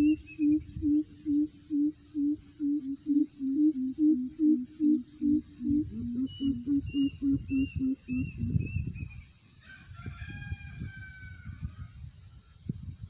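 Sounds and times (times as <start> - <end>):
bird giving deep hoots: 0.0 - 8.8
thin high whine: 0.0 - 9.3
rooster crowing faintly: 9.6 - 12.0.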